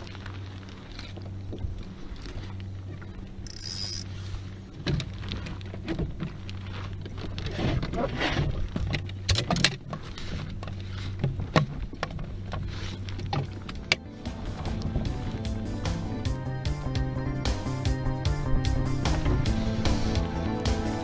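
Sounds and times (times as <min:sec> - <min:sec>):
fishing tackle rattling: 0:03.4 - 0:04.1.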